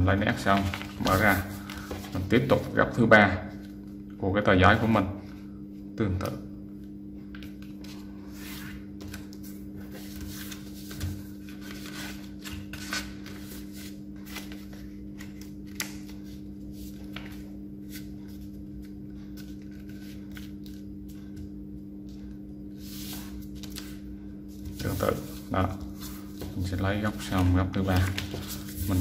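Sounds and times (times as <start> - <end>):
steady low hum: 0.0 - 29.0
paper rustling and crinkling: 0.3 - 2.6, 24.7 - 29.0.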